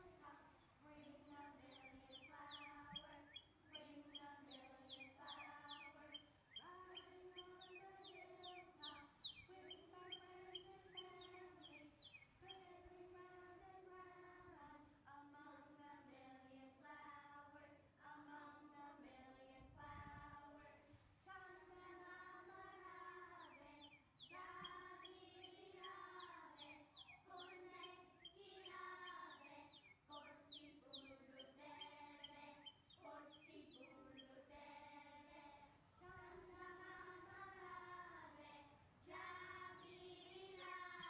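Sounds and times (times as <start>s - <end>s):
birds chirping: 0.0s - 13.1s, 21.5s - 41.0s
children singing: 0.0s - 41.0s.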